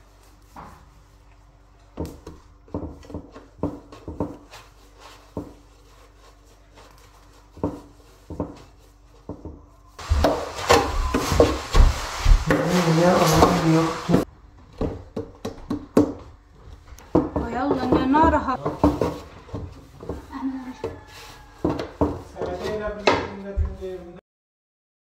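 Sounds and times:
dough patting on board: 1.8s - 6.2s, 6.9s - 12.8s, 13.4s - 16.3s, 17.0s - 23.8s.

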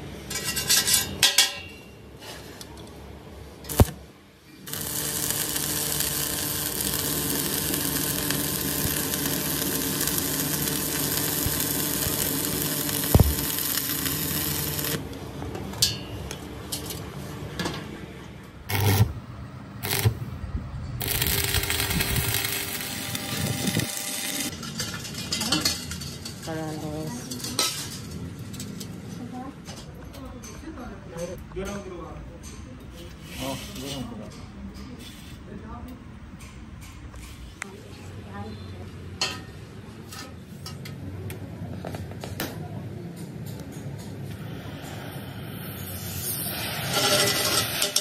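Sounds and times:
arc welding crackling hiss: 3.7s - 4.0s, 4.7s - 15.0s, 18.7s - 19.1s, 19.8s - 20.3s, 21.0s - 24.5s, 44.4s - 48.0s.

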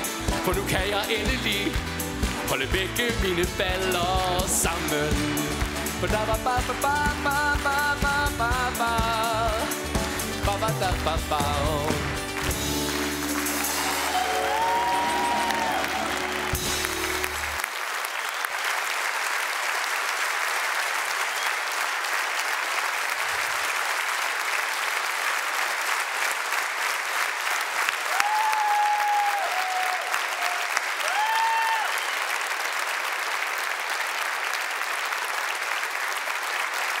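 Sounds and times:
audience applauding: 0.0s - 37.0s
crowd cheering: 12.4s - 37.0s.

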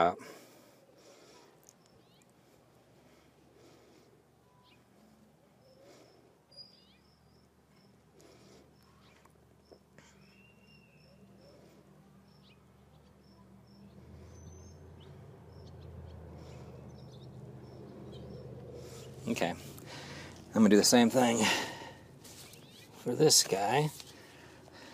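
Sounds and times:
bird chirps: 1.7s - 2.4s, 4.4s - 8.1s, 8.7s - 19.3s, 22.3s - 23.1s.

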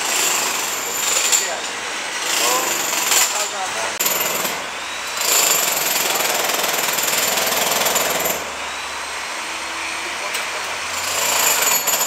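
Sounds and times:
jackhammer breaking floor: 2.3s - 3.4s, 5.2s - 8.5s, 11.0s - 12.0s.

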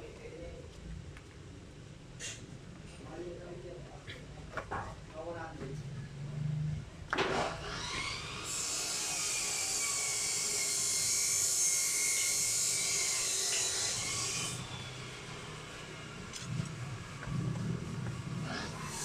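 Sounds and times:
electric drill whining: 7.4s - 15.7s.

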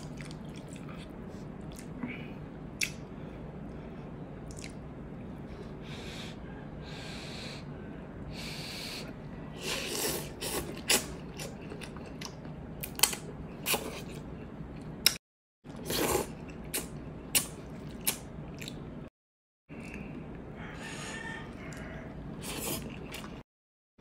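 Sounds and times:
chewing: 0.0s - 1.9s.

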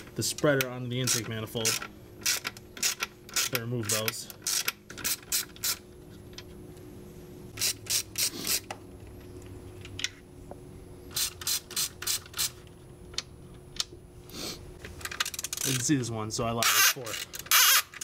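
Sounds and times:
hand ratchet clicking: 0.4s - 5.8s, 15.0s - 15.9s, 16.6s - 18.0s.

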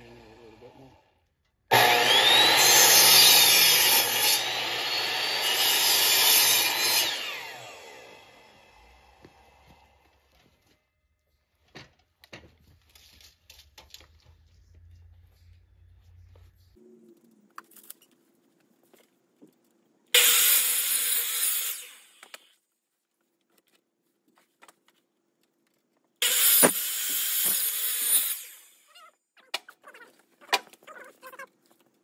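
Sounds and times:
miter saw cutting wood: 1.7s - 10.0s, 20.2s - 22.4s, 26.2s - 28.8s.

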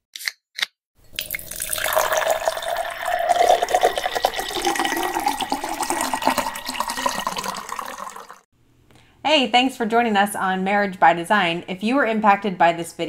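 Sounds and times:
liquid pouring: 1.0s - 8.5s.

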